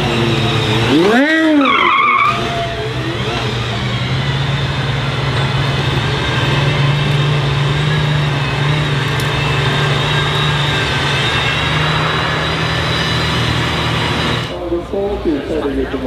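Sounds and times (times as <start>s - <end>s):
car engine droning at low revs: 0.0s - 16.0s.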